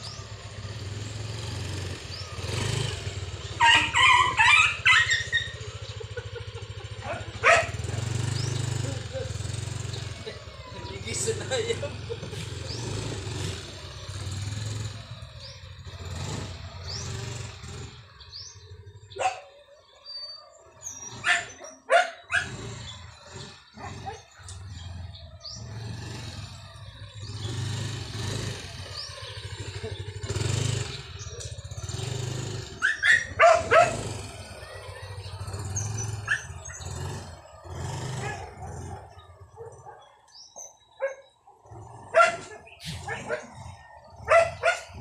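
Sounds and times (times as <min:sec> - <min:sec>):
scooter engine running: 0:00.0 - 0:45.0
dog barking: 0:03.6 - 0:05.6, 0:07.0 - 0:08.0, 0:19.1 - 0:19.6, 0:21.1 - 0:22.7, 0:23.8 - 0:24.5, 0:32.8 - 0:35.1, 0:36.2 - 0:36.8, 0:38.1 - 0:45.0.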